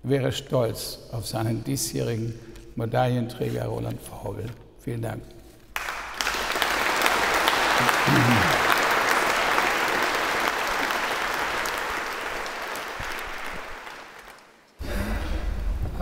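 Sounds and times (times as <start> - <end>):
audience applauding: 5.8 - 14.7.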